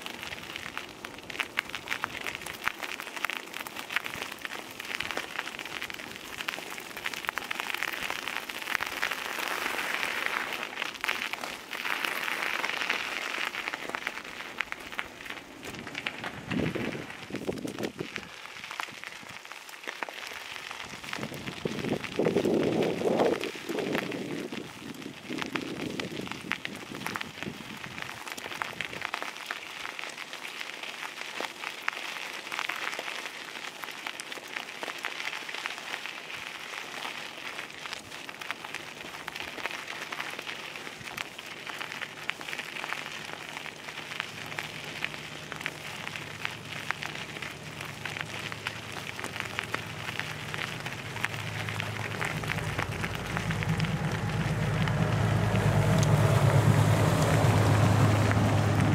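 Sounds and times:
dense crackling hiss: 0.0s - 58.9s
boat engine hum: 44.1s - 58.9s.

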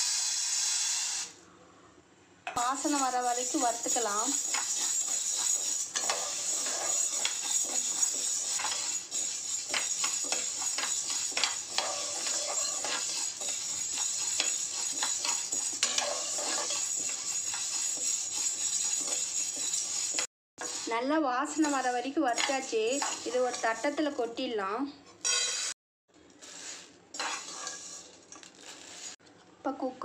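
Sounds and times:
beans rattling in a pot: 2.6s - 20.8s, 21.6s - 24.2s, 26.4s - 29.2s
metal ladle stirring: 2.7s - 20.8s, 21.6s - 24.1s, 26.4s - 29.2s.

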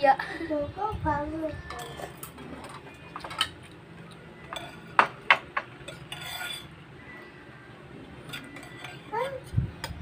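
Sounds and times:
spoons clinking against bowls: 1.6s - 7.2s, 8.2s - 10.0s.

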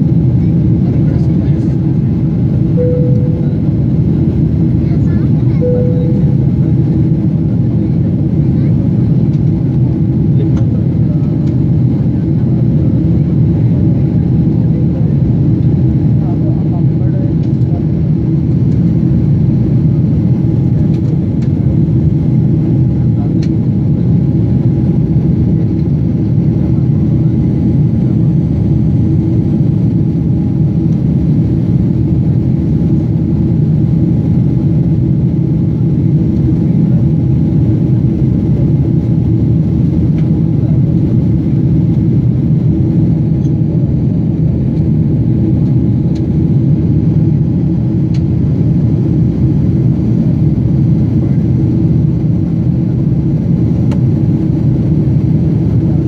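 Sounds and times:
jet airliner cabin rumble: 0.0s - 56.0s
faint steady hum: 2.7s - 4.0s, 4.8s - 6.5s.

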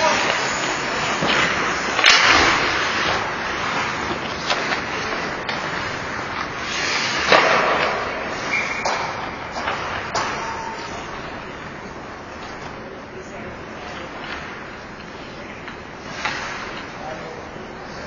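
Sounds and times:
skate blades scraping ice: 0.0s - 11.5s, 16.0s - 18.0s
hockey sticks and puck clacking: 0.0s - 12.9s, 13.8s - 18.0s.

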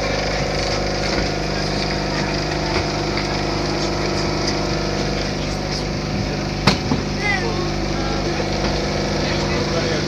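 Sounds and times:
tram motor hum: 0.0s - 10.0s
sharp knock: 6.6s - 7.1s.

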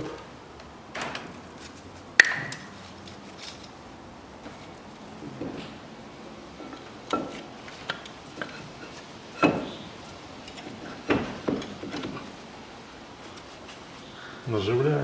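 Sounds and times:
metal clunks and knocks: 5.2s - 5.8s, 6.6s - 12.3s.

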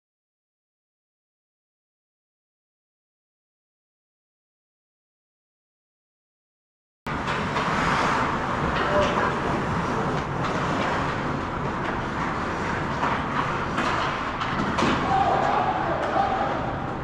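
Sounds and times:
indistinct voices: 14.9s - 17.0s.

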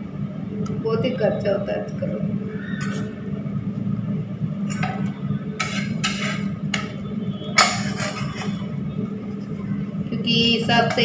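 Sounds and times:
steady low hum: 0.0s - 11.0s
utensils knocking and scraping: 4.7s - 7.0s, 7.6s - 8.6s, 10.7s - 11.0s.

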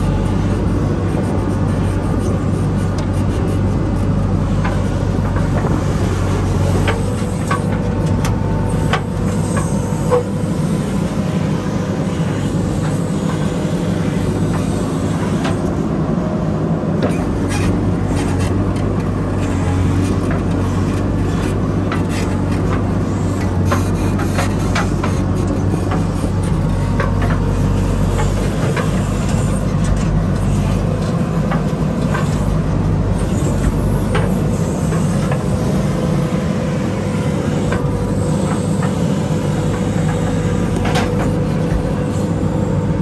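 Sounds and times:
diesel engine running: 0.0s - 43.0s
clanks and knocks: 39.7s - 41.9s.

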